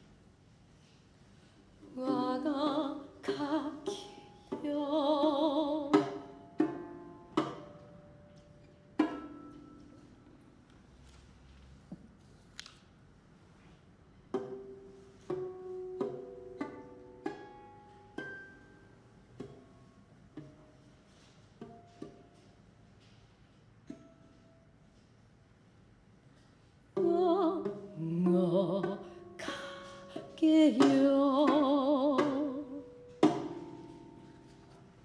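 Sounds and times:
plucked lute notes: 0:01.8 - 0:10.6, 0:14.3 - 0:20.8, 0:27.0 - 0:35.0
person singing with vibrato: 0:01.9 - 0:06.0, 0:27.0 - 0:32.8.

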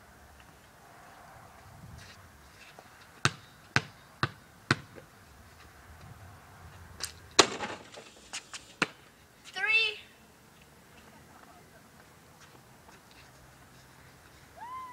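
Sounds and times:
basketball bouncing on concrete: 0:03.2 - 0:05.1.

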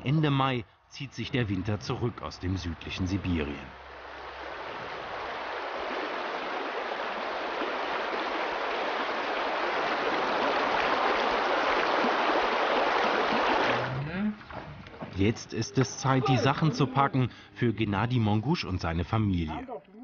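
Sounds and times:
river water rushing over stones: 0:02.9 - 0:14.0.

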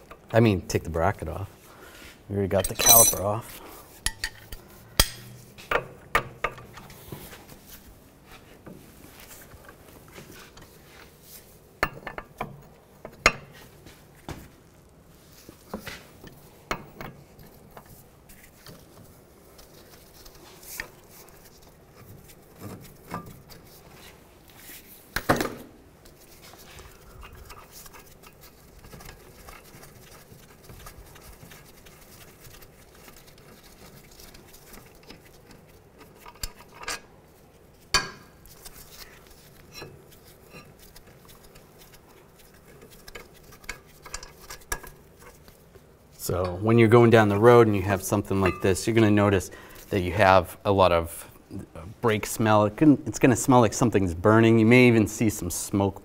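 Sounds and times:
metal clinks and knocks: 0:02.5 - 0:03.4.

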